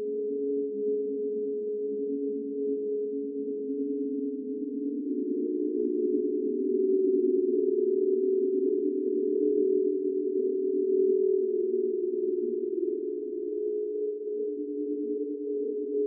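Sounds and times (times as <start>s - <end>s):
eerie low droning hum: 3.7s - 16.0s.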